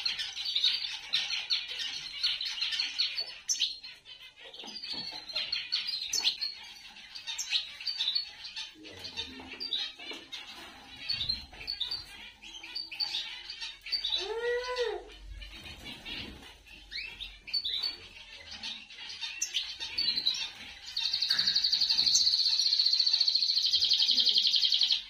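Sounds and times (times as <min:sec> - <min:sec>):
finches chirping: 0:00.0 - 0:25.0.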